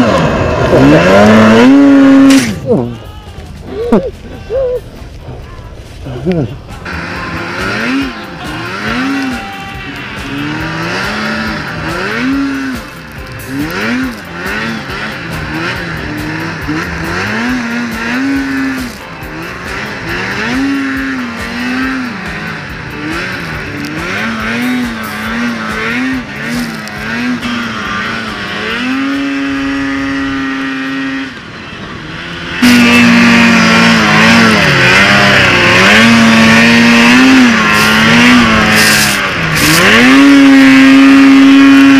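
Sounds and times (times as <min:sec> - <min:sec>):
snowmobile engine revving: 0:00.0 - 0:05.1, 0:05.8 - 0:41.9.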